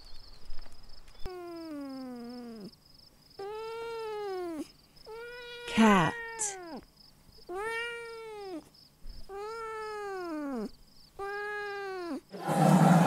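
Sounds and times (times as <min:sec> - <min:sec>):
cat meowing: 0:03.4 - 0:06.8, 0:07.5 - 0:08.7, 0:09.3 - 0:12.4.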